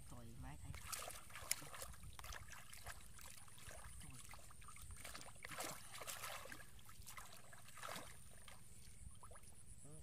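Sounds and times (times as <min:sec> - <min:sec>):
muddy water splashing and sloshing: 0:00.0 - 0:09.8.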